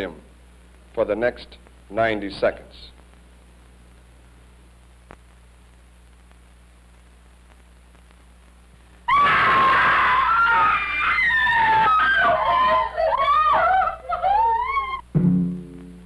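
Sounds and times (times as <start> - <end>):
faint steady hum: 0.0 - 16.0
woman screaming: 9.1 - 15.0.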